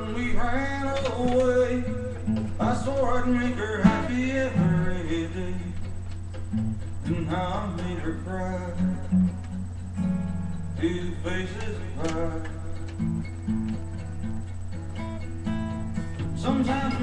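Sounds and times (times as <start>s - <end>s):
acoustic guitar strumming chords: 0.0s - 17.0s.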